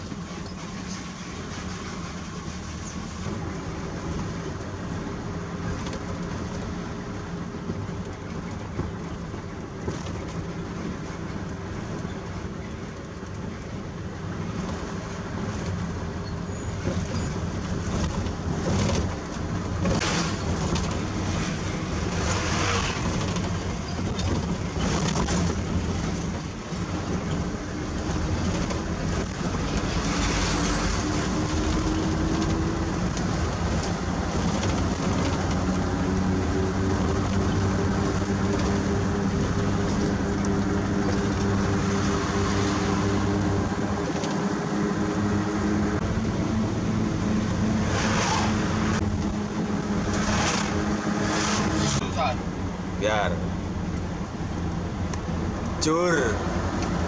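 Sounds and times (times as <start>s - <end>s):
road noise: 0.0s - 57.0s
truck diesel engine: 0.0s - 57.0s
oncoming vehicle passing: 29.5s - 52.5s.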